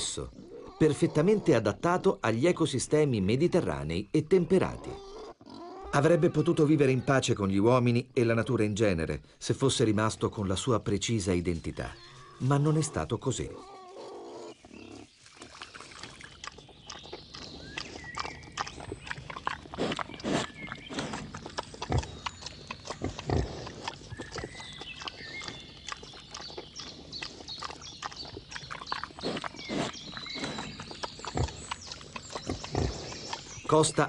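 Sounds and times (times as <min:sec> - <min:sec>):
wild boar chewing and crunching: 0:09.9 - 0:34.0.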